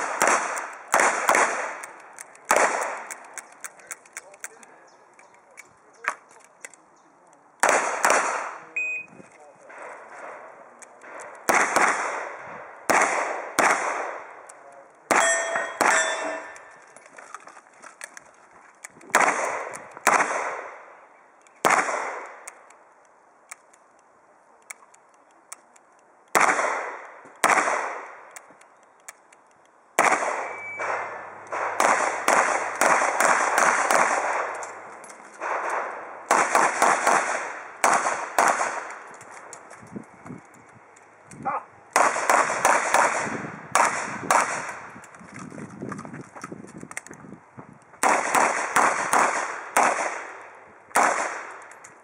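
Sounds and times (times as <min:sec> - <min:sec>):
steel targets ringing: 0:15.1 - 0:16.8, 0:30.4 - 0:31.3.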